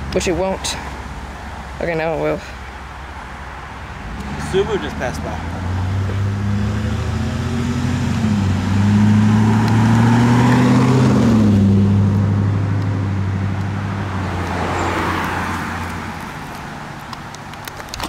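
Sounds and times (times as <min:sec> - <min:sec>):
tyre and road noise: 0:00.0 - 0:18.0
truck engine accelerating: 0:04.0 - 0:16.5.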